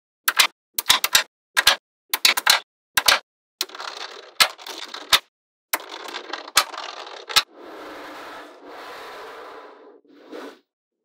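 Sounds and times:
scraping rattle: 5.8 - 7.5.

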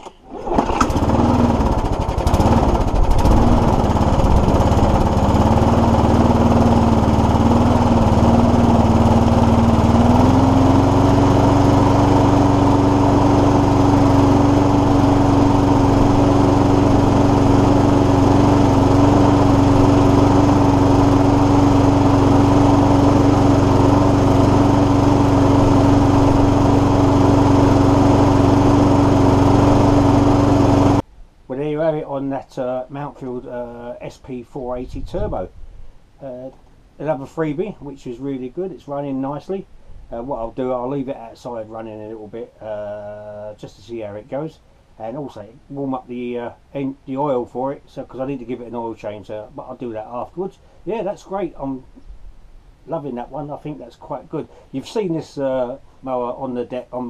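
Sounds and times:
lawn mower engine running: 0.0 - 31.1.

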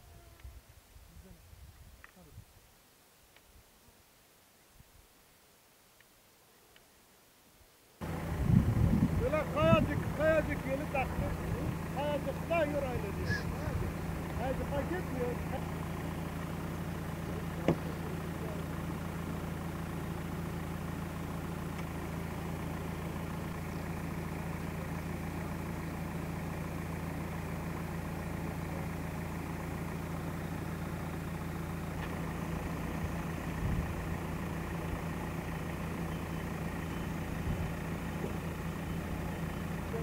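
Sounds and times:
engine running low hum: 8.0 - 40.0.

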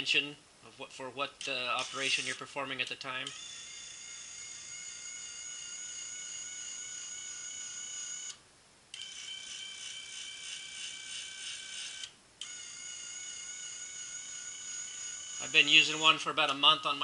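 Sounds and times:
actuator motor whine: 3.2 - 8.4, 9.0 - 16.2.

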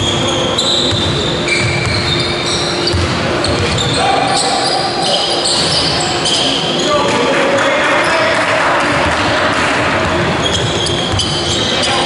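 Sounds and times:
shoes squeaking on floor: 0.0 - 7.2, 10.1 - 12.0
indoor hall noise: 0.0 - 12.0
voices: 2.1 - 12.0
basketball dribbling thuds: 8.9 - 11.5.

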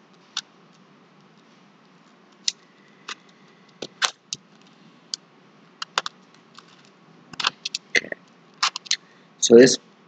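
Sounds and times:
sliding puzzle tiles clicking: 5.8 - 7.9, 8.6 - 9.0.

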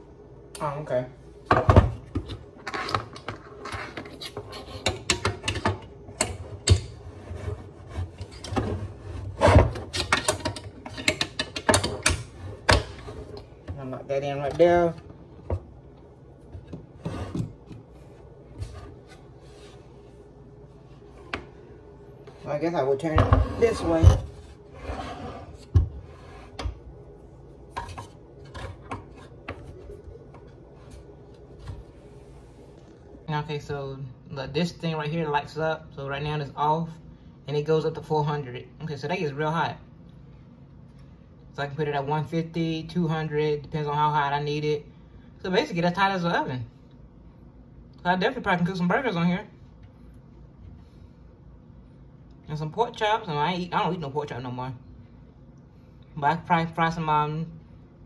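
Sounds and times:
griddle rubbing on surface: 23.2 - 26.6.

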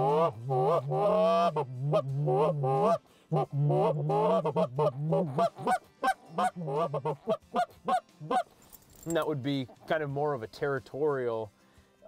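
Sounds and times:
goose call moaning notes: 0.0 - 8.5.

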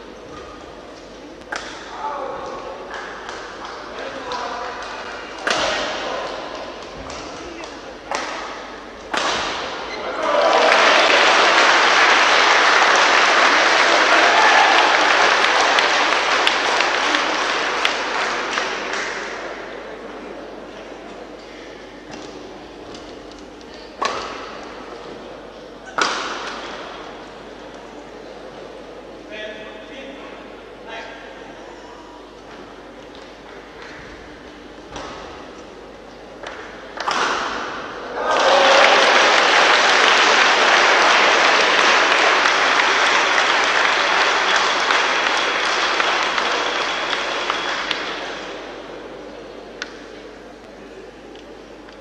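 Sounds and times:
racket hitting shuttlecock: 1.5 - 3.9, 5.4 - 9.9, 24.0 - 24.8, 25.8 - 27.0, 36.4 - 38.0
crowd applauding and cheering: 9.9 - 19.5, 38.0 - 48.7.

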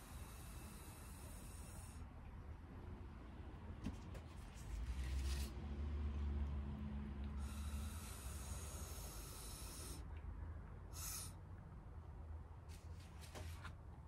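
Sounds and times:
breath blown through a straw: 0.0 - 2.0, 7.4 - 10.0, 10.9 - 11.4.

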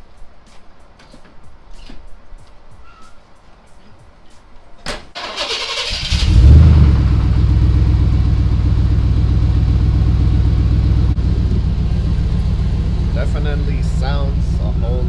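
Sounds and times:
engine starter cranking: 5.2 - 6.4
truck engine idling: 5.4 - 15.0.

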